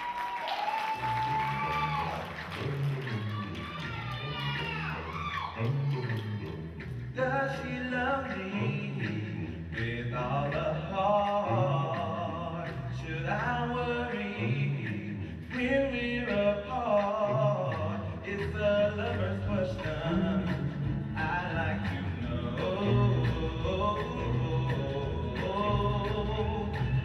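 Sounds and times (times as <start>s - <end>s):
male vocal group singing harmony: 5.6s - 27.0s.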